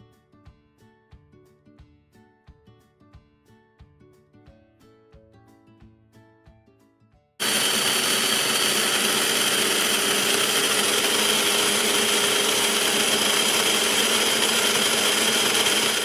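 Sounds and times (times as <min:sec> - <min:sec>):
electric blender grinding: 0:07.4 - 0:16.0.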